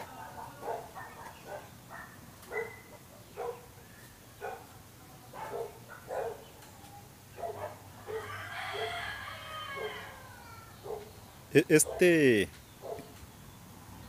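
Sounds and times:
dog barking: 0.2 - 3.8, 4.4 - 6.6, 7.3 - 9.0, 10.8 - 11.1, 11.8 - 12.2, 12.8 - 13.1.

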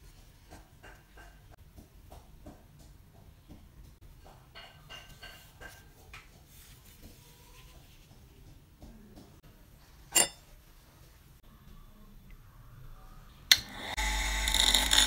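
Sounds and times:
soft handling noises: 5.0 - 11.3.

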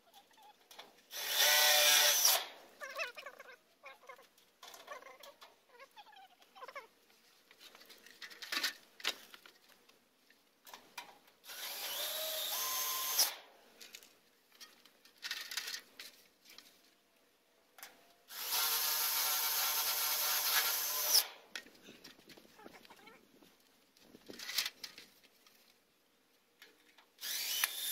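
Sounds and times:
cordless drill driving screws: 1.1 - 2.5, 11.5 - 13.4, 18.3 - 21.4, 27.2 - 27.9.

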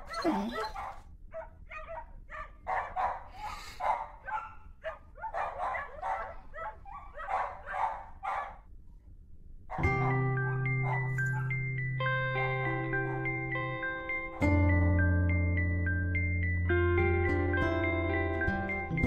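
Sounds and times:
dog barking and yipping: 0.0 - 8.6, 9.7 - 11.6.

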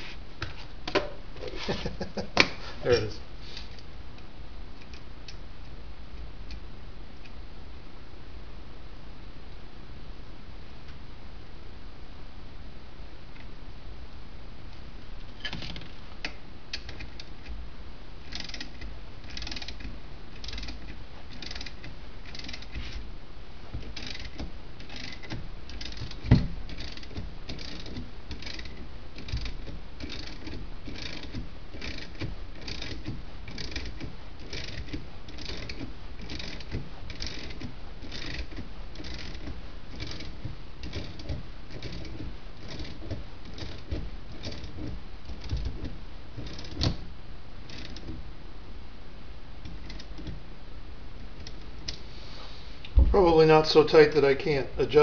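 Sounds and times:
ratchet wrench clicking: 18.3 - 19.8, 20.4 - 22.8, 23.9 - 43.8.

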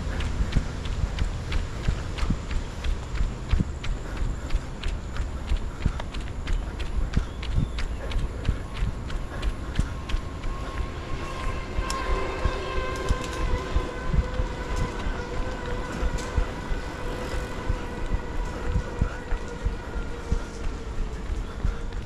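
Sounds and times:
passing vehicle whine: 8.2 - 22.0.

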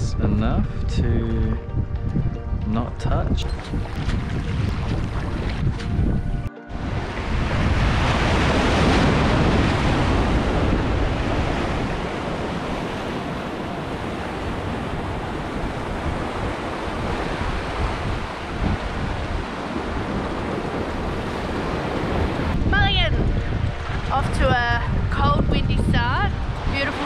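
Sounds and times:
wind rumbling on microphone: 0.0 - 27.0.

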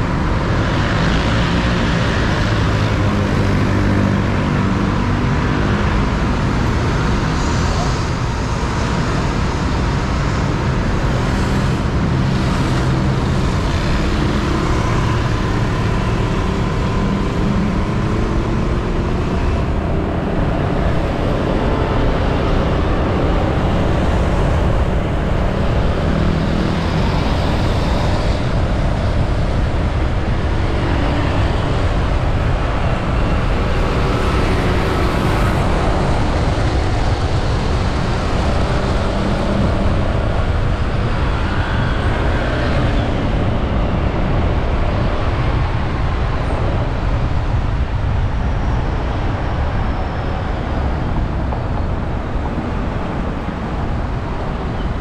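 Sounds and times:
dense traffic road noise: 0.0 - 55.0.

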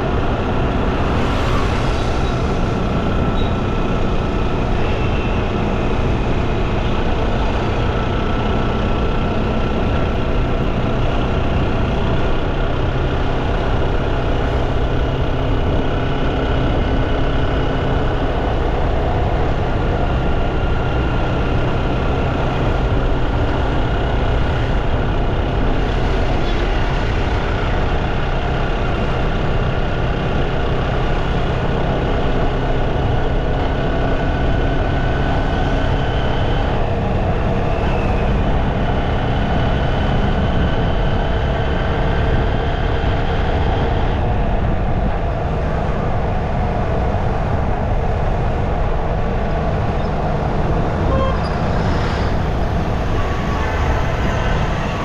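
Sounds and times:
faint whine: 0.0 - 6.1
engine and traffic noise: 0.0 - 55.0.

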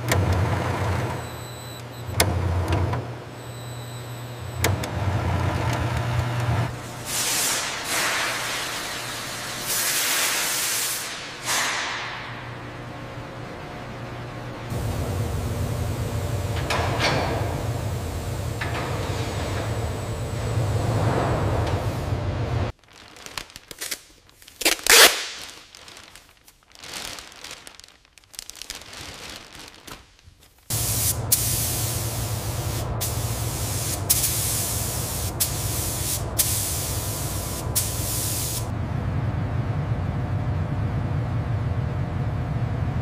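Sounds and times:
steady low hum: 12.0 - 22.7, 30.7 - 43.0
paint spray gun hissing: 30.7 - 38.7.

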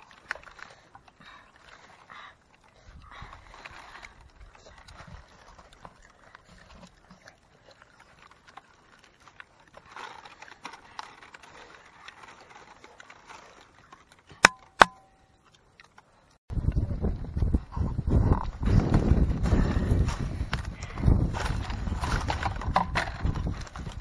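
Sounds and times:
fingers rustling palm leaves: 0.0 - 14.6.

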